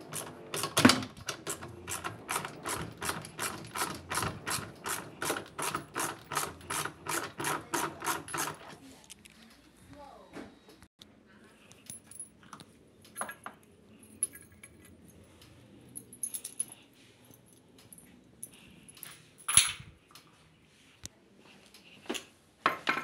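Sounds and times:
tools and parts clattering: 11.8s - 19.9s, 22.1s - 23.0s.

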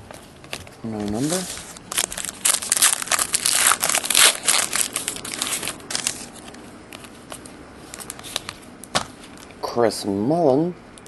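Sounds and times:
wrapper tearing and crinkling: 1.0s - 6.5s.

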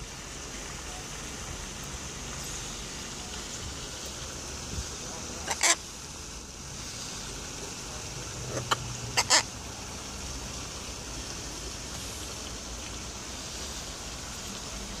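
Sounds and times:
outdoor background hiss: 0.0s - 15.0s
macaws harsh calls: 5.3s - 5.8s, 8.4s - 9.5s.

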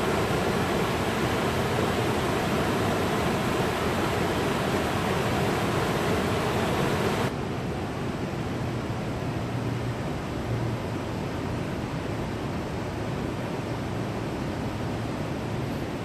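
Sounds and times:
river rapids rushing over rocks: 0.0s - 7.3s.

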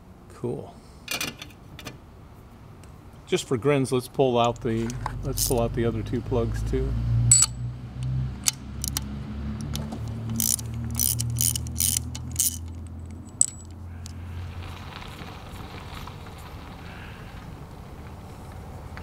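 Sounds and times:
low steady hum: 0.0s - 19.0s
socket wrench clicking: 4.5s - 5.6s, 7.3s - 14.2s
metallic ping: 7.3s - 7.6s.

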